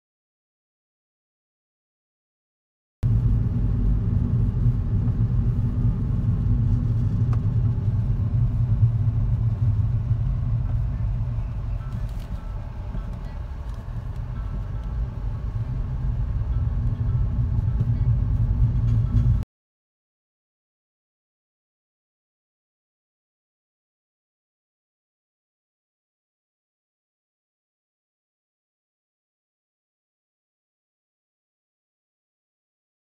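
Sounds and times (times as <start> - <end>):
car engine and tyres rumbling: 3.0 - 19.4.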